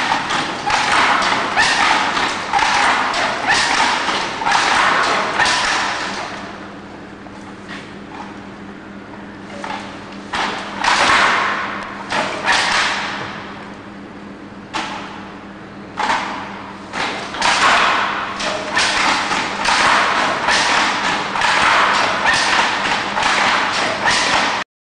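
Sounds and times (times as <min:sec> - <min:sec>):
handloom knocking and clacking: 0:00.0 - 0:06.2, 0:09.6 - 0:13.2, 0:16.0 - 0:24.6.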